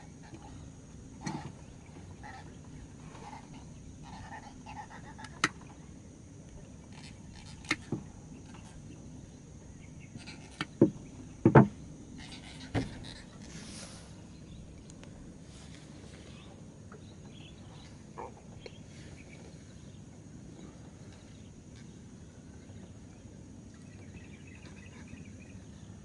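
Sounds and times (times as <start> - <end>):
sharp knocks and thumps: 10.5 - 11.8.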